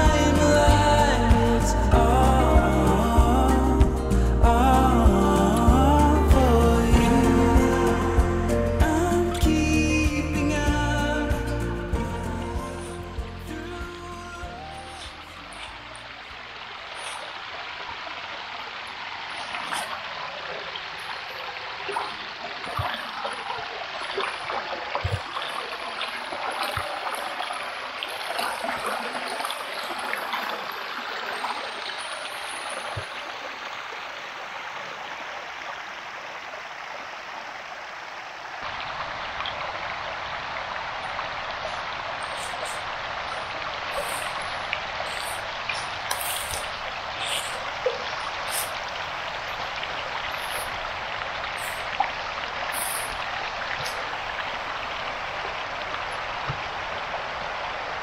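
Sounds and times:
brook trickling over rocks: 0:12.7 - 0:58.0.

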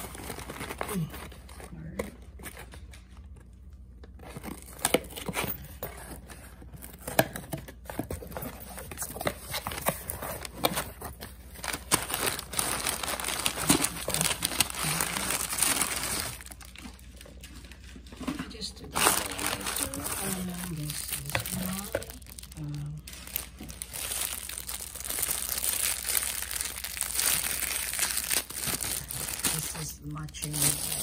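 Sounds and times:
packing paper crinkling: 0:00.0 - 0:31.0.

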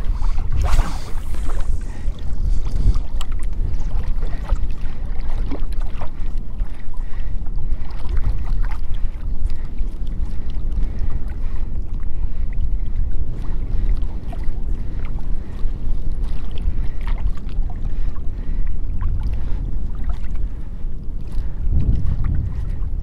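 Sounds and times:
faint water splashes and ticks: 0:00.0 - 0:23.0
wind buffeting microphone: 0:00.0 - 0:23.0.

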